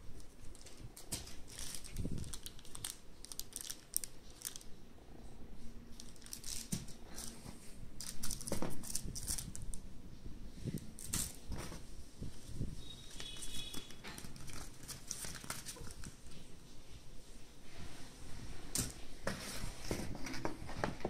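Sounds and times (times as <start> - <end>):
plastic bags crinkling: 0.2 - 4.8, 6.0 - 9.8, 10.8 - 11.8, 13.0 - 16.4.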